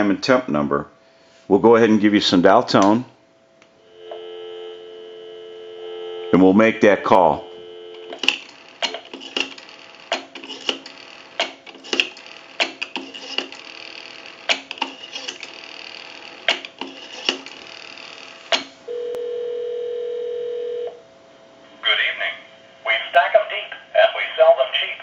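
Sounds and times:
phone ringback tone: 3.8s - 8.2s, 18.9s - 21.0s.

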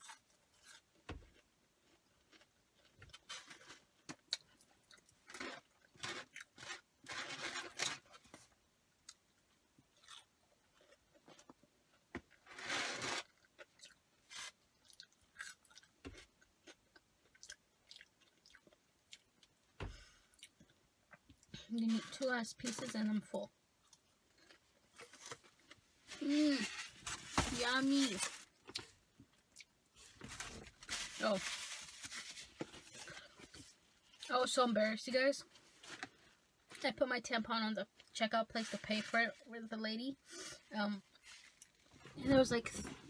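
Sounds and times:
chewing crunchy fries: 0.0s - 8.1s, 9.0s - 21.9s, 23.8s - 26.8s.

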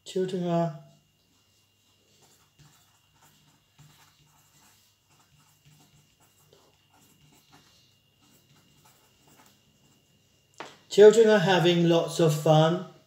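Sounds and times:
pen scratching on paper: 2.0s - 10.0s.

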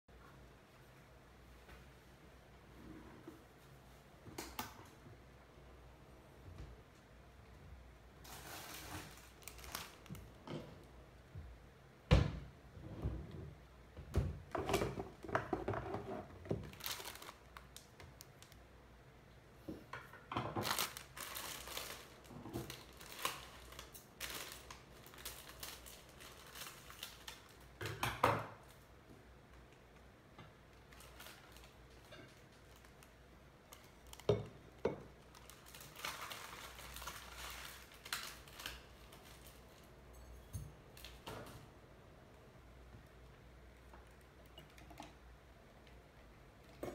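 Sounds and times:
plastic packet crinkling: 8.2s - 10.4s, 16.6s - 18.6s, 20.6s - 27.8s, 30.7s - 34.4s, 35.2s - 39.9s.

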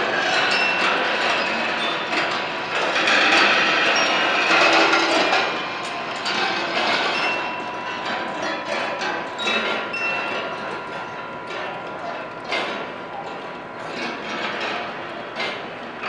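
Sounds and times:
short ringing pings: 9.2s - 13.3s.

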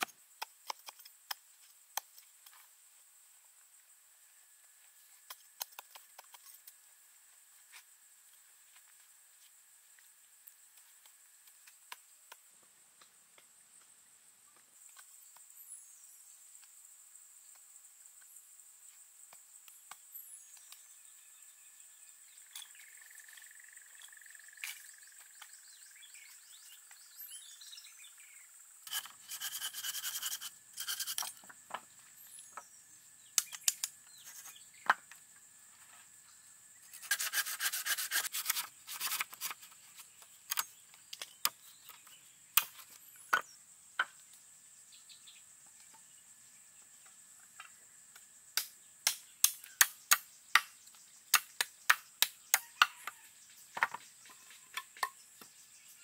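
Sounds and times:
high insect drone: 0.0s - 56.0s
rapid scraping: 28.9s - 31.4s.

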